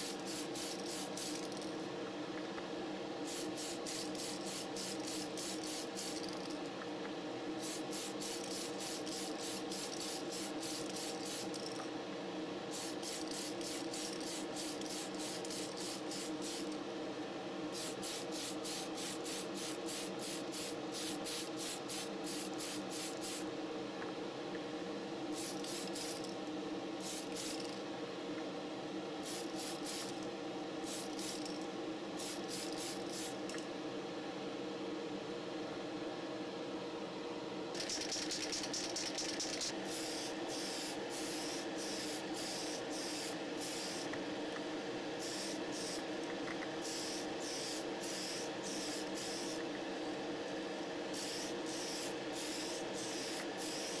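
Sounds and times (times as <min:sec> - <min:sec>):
aerosol spray can hissing: 0:00.0 - 0:01.5, 0:03.3 - 0:06.4, 0:07.6 - 0:11.6, 0:12.7 - 0:16.7, 0:25.4 - 0:26.2, 0:32.2 - 0:33.4, 0:37.8 - 0:44.1, 0:45.2 - 0:46.0, 0:46.8 - 0:49.6, 0:51.1 - 0:54.0
steady hum: 0:00.0 - 0:54.0.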